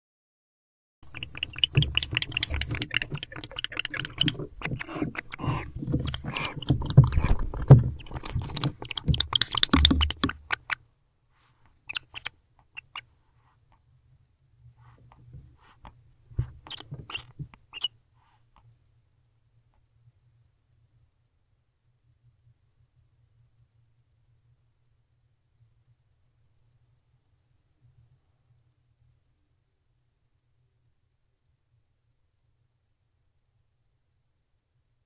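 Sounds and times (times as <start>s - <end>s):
owl scratching against camera: 1.1s - 10.8s, 11.4s - 13.1s, 14.8s - 17.9s.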